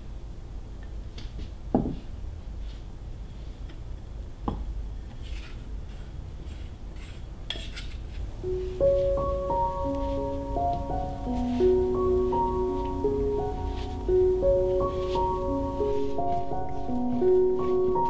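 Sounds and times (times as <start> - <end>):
gentle music: 8.2 - 18.0.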